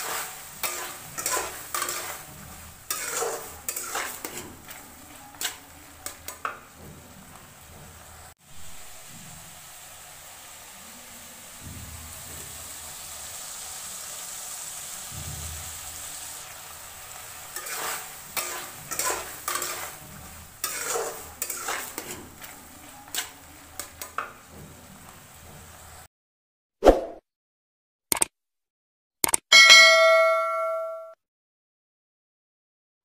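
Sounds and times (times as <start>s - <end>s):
metal spatula scraping a pan: 0.0s - 8.3s, 15.6s - 26.0s
curry sizzling in a pan: 0.0s - 26.1s.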